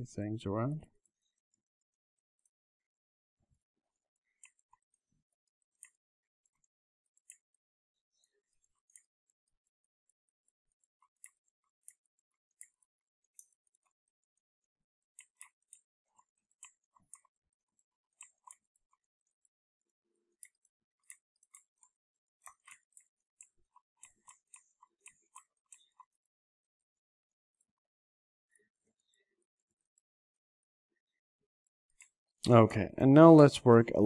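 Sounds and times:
computer keyboard and mouse clicking: 4.2s - 28.0s.

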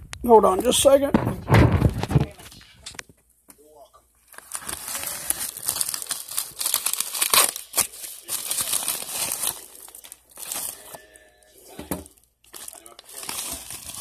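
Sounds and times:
paper envelope tearing: 4.3s - 11.1s, 12.5s - 14.0s.

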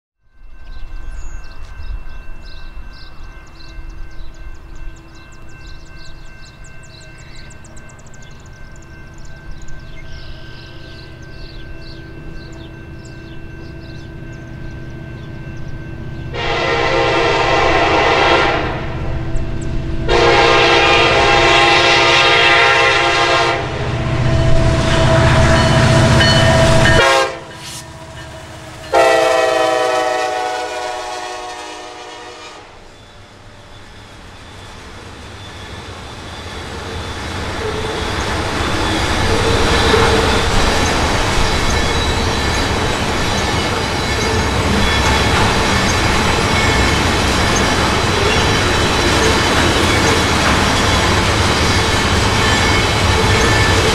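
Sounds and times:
locomotive engine rumbling: 3.9s - 53.9s
train air horn blasts: 16.3s - 19.2s, 20.0s - 32.9s
train wheel clatter: 33.7s - 53.9s.

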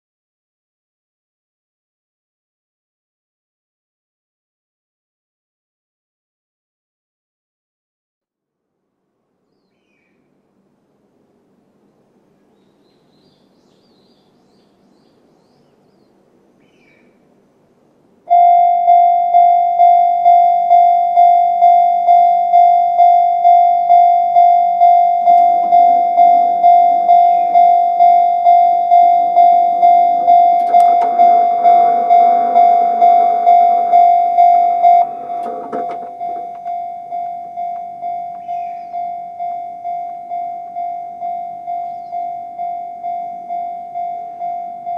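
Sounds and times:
level crossing warning bell: 18.3s - 44.9s
approaching train rumble: 19.6s - 44.9s.

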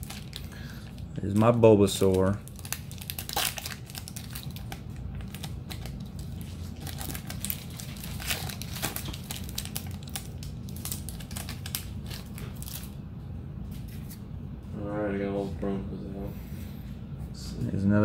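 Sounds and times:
foil wrapper crinkling: 0.0s - 13.0s.

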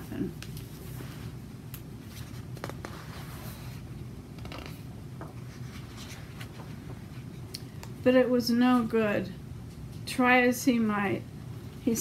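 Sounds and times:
low room hum: 0.0s - 12.0s
book pages rustling: 2.0s - 7.5s.

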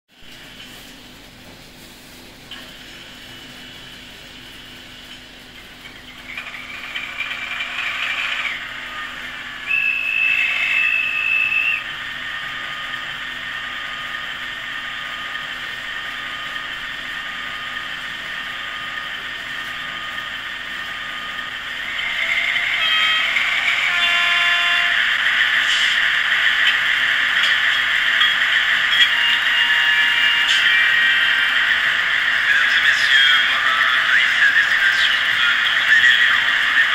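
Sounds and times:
simulated diesel engine from speaker: 5.9s - 36.9s
steady high tone: 7.6s - 36.9s.

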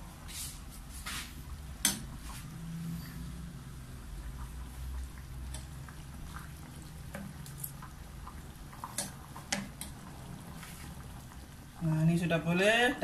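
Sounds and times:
low steady rumble: 0.0s - 12.5s
curry bubbling with soft pops: 1.2s - 13.0s
ladle stirring: 4.2s - 11.9s.

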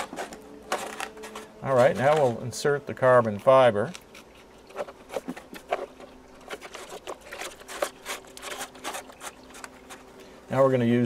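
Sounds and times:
fingers rubbing against foam: 4.2s - 10.1s.

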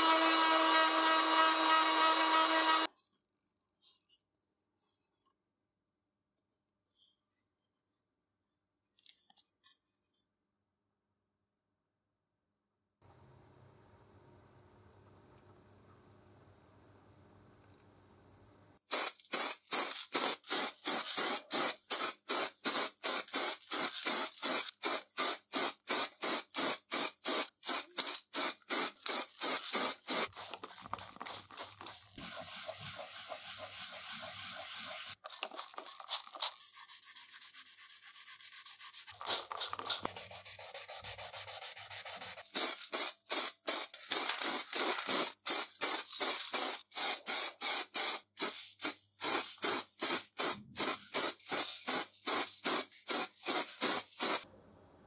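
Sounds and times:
hand sanding strokes: 29.9s - 35.2s, 36.6s - 39.2s, 40.1s - 42.6s
steady sanding hiss: 31.8s - 35.2s.

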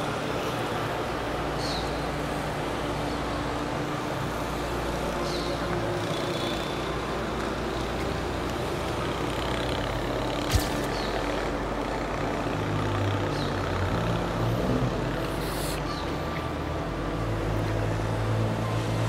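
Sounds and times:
road traffic: 0.0s - 19.0s
sharp click: 10.5s - 11.2s.

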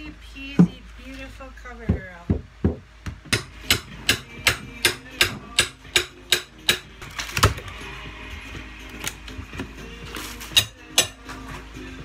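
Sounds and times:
hand hammer striking: 2.3s - 7.6s, 10.5s - 11.4s.

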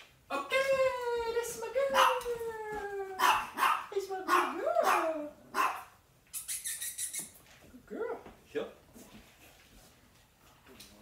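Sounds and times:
dog barking: 2.0s - 2.3s, 3.2s - 6.0s
dog hissing: 6.3s - 7.4s.

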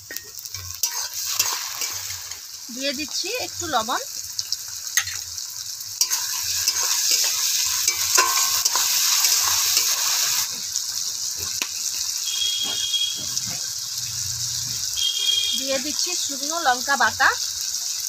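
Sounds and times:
vegetables sizzling in oil: 0.0s - 18.0s
metal spatula scraping pan: 0.5s - 2.4s, 6.0s - 10.6s.

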